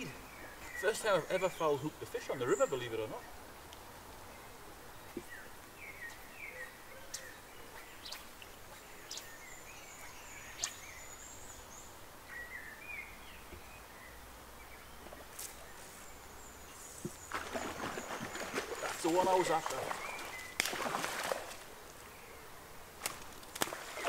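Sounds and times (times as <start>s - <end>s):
small birds chirping: 0.0s - 24.0s
flowing river water: 17.3s - 21.7s, 23.5s - 24.0s.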